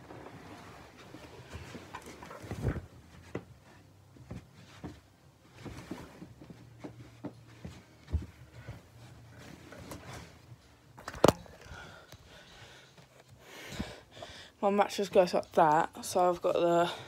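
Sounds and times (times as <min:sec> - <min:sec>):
mattress thumps and rustling: 0:01.1 - 0:10.3.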